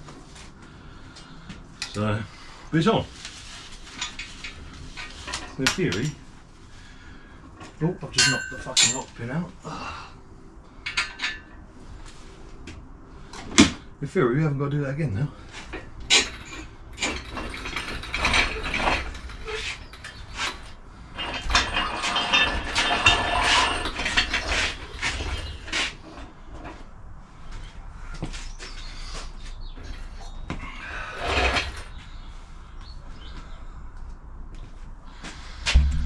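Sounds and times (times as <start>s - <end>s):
metal clanks and knocks: 15.7s - 25.8s, 35.7s - 36.0s.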